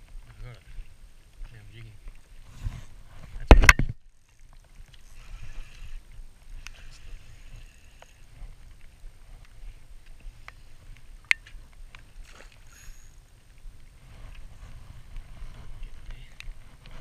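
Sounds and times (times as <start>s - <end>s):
water and wind rumble: 0.0s - 17.0s
fishing reel clicks: 4.2s - 6.0s, 12.6s - 13.2s.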